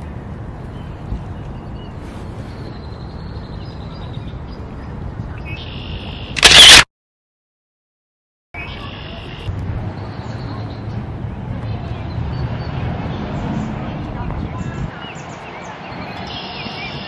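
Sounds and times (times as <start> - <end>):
outdoor background noise: 0.0 - 6.9, 8.6 - 17.0
camera shutter click: 6.4 - 6.9.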